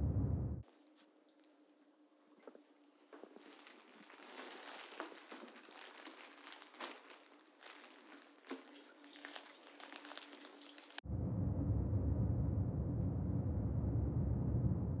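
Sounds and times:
low steady hum: 0:00.0 - 0:03.2, 0:11.0 - 0:15.0
irregular crackling and rustling: 0:00.6 - 0:11.0.

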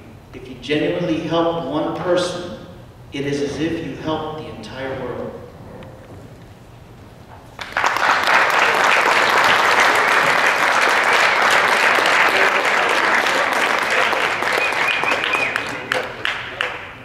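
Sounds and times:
crowd applauding: 0:07.5 - 0:17.0.

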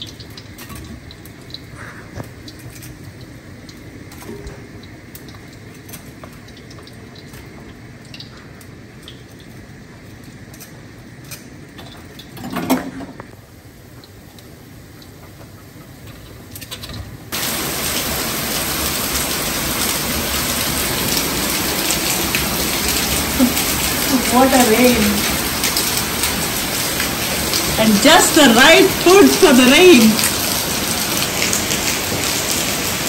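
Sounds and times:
heavy rain: 0:17.2 - 0:33.0.

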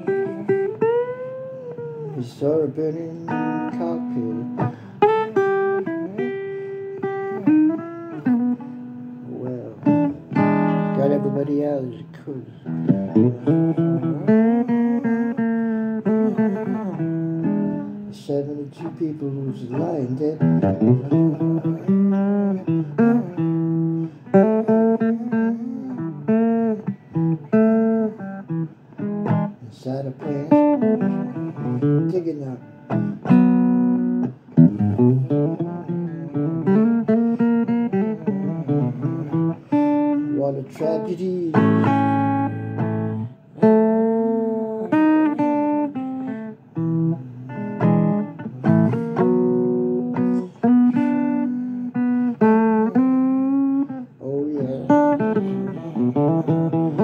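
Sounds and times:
blues on acoustic guitar: 0:00.0 - 0:57.0.

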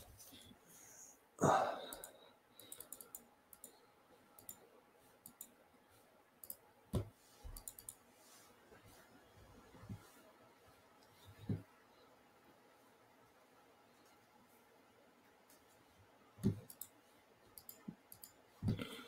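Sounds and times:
computer mouse clicking: 0:01.9 - 0:03.8, 0:04.4 - 0:04.6, 0:05.2 - 0:05.6, 0:06.4 - 0:08.0, 0:16.4 - 0:18.8.

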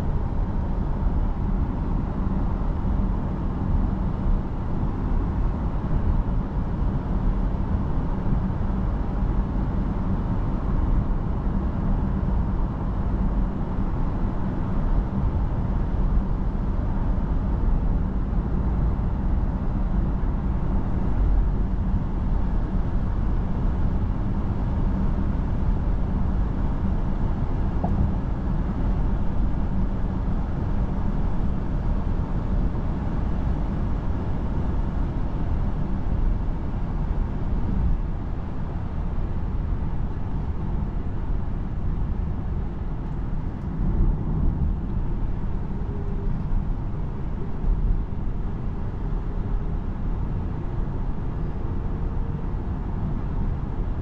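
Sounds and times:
faint whine: 0:25.8 - 0:34.1
car cabin road rumble: 0:26.1 - 0:29.9.

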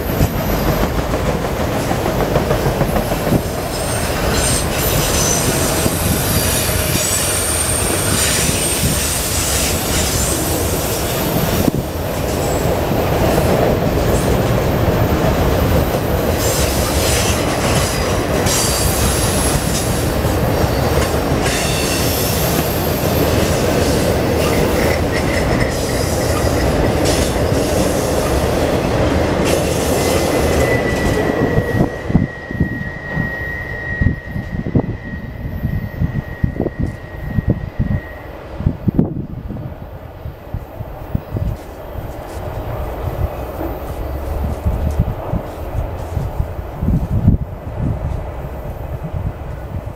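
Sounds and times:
wheels clickety-clack: 0:00.0 - 0:10.6, 0:11.6 - 0:31.7
freight train rumbling: 0:00.0 - 0:49.9
wheel squeal: 0:03.7 - 0:10.5, 0:16.4 - 0:28.4, 0:29.4 - 0:38.4.

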